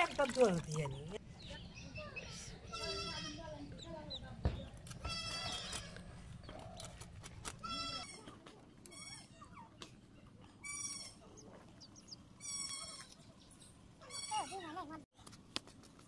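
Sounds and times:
farm animals bleating: 2.7 - 3.4.

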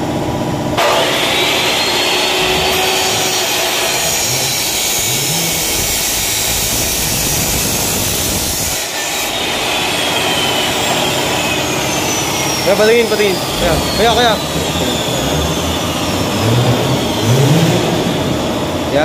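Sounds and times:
chop saw grinding metal: 0.8 - 18.2.

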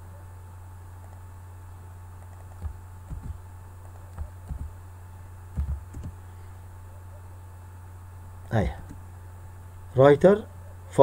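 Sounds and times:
low electrical hum: 0.0 - 11.0
computer keys clicking: 2.2 - 4.8, 5.6 - 6.2.

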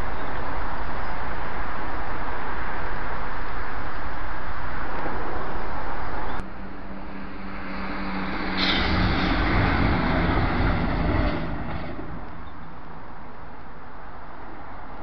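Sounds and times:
loud steady rush of noise: 0.0 - 15.0
train passing rumble: 0.0 - 15.0.

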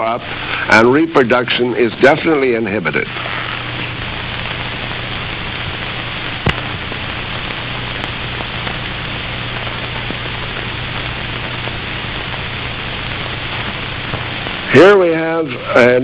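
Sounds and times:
film soundtrack hiss: 0.0 - 16.0
low hum: 3.0 - 15.8.

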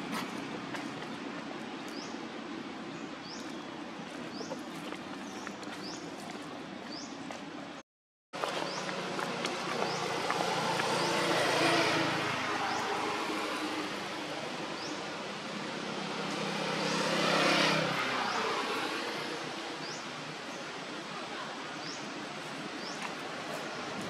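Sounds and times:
distant vehicle engine passing: 8.7 - 14.7, 15.4 - 19.5.

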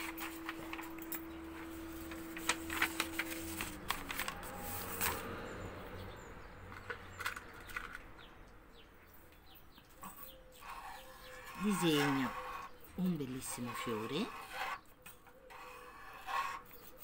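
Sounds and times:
paper rustling and crackling: 0.0 - 5.4.

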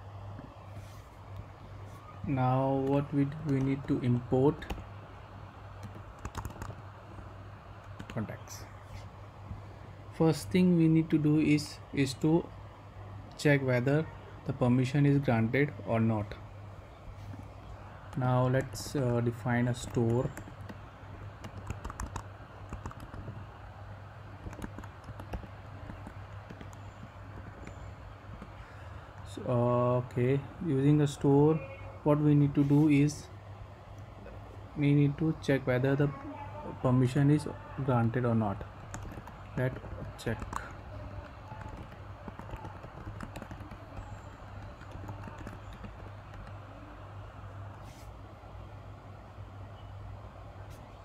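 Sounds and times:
steady low hum: 0.0 - 51.0
computer keyboard typing: 2.7 - 5.0, 5.7 - 6.9, 7.8 - 8.3, 18.0 - 23.6, 24.3 - 29.3, 38.0 - 47.0.

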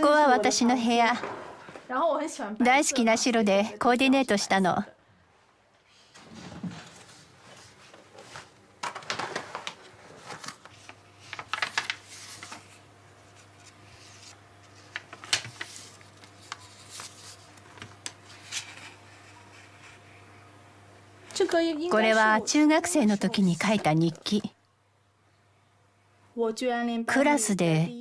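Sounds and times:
faint steady hum: 0.0 - 28.0
notebook pages rustling: 6.7 - 20.0.

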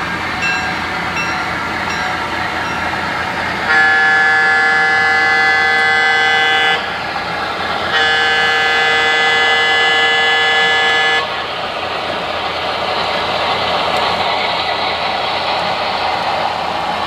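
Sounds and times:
model train rumbling: 0.0 - 17.0
locomotive horn blast: 3.5 - 7.2, 7.8 - 11.5.

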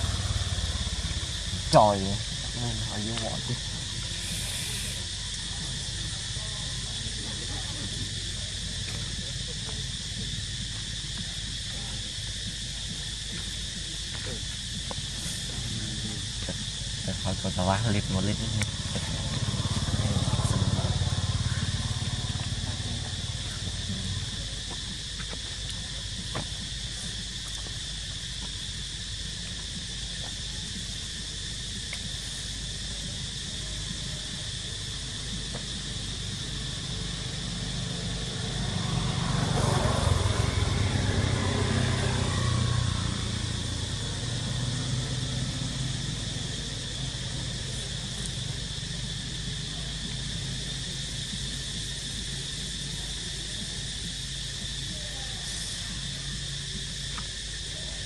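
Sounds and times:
vehicle engine passing: 0.0 - 3.7, 18.6 - 24.7, 37.0 - 50.6
high-pitched insect drone: 0.0 - 58.0.

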